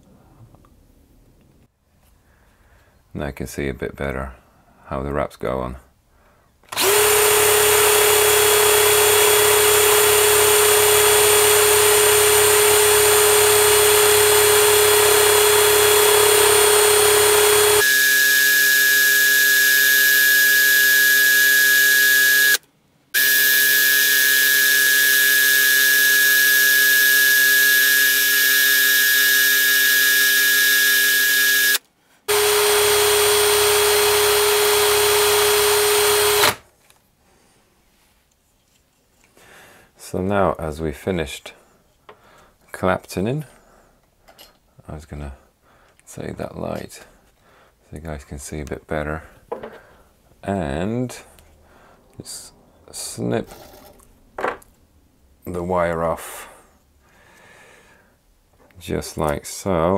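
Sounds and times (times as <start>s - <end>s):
electric drill running: 6.7s - 22.6s, 23.2s - 36.6s.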